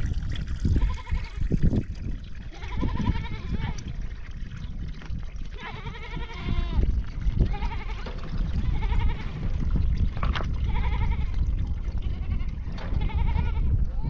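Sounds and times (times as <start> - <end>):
goats or sheep bleating: 0.7 - 1.4, 2.5 - 3.9, 5.6 - 6.8, 7.4 - 9.5, 10.6 - 14.0.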